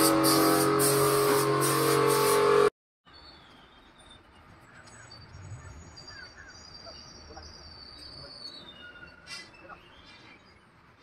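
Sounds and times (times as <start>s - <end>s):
high steady whistle: 0.0s - 2.7s
bird chirps: 3.1s - 10.8s.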